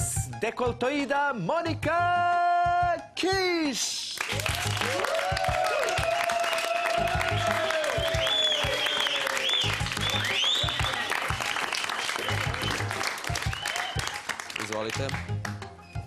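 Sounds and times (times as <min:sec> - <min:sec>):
audience applauding: 0:04.2 - 0:15.7.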